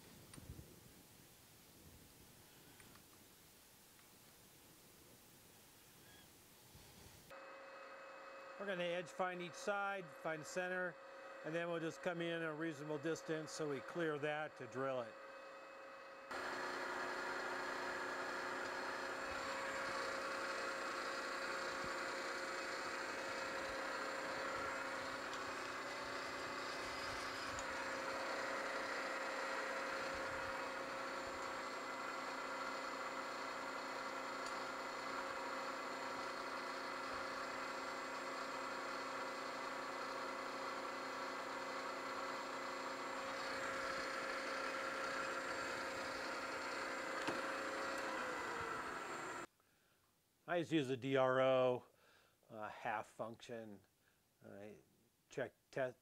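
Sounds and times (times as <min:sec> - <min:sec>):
milling machine spindle whirring: 0:12.9 - 0:49.5.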